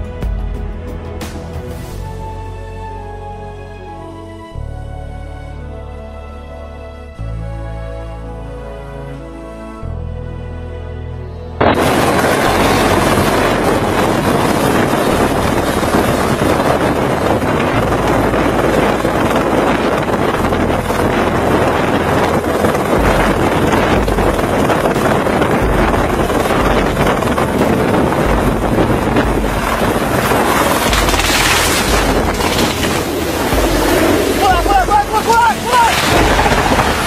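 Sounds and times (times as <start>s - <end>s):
wind buffeting microphone: 11.4s - 37.0s
helicopter hovering: 11.6s - 20.2s, 21.8s - 37.0s.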